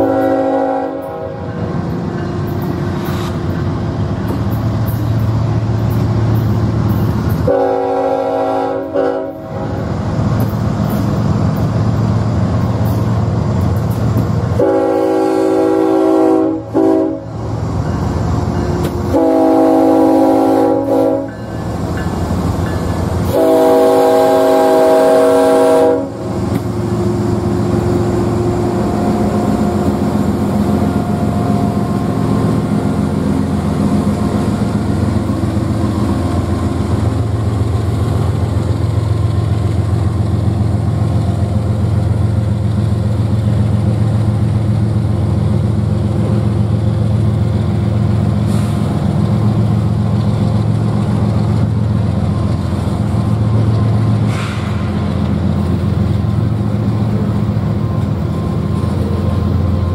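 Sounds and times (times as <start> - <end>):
locomotive air horn blasts: 0.0 - 1.5, 7.4 - 9.8, 14.6 - 17.4, 19.1 - 21.4, 23.2 - 26.2
diesel engines droning: 0.0 - 59.9
freight train cars rumbling: 0.0 - 59.9.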